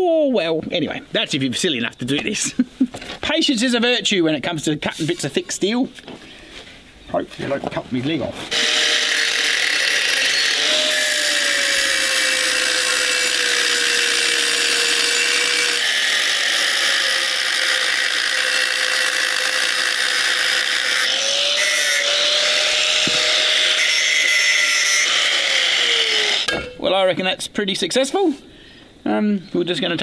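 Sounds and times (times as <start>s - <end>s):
angle grinder cutting steel pipe: 8.5s - 26.8s.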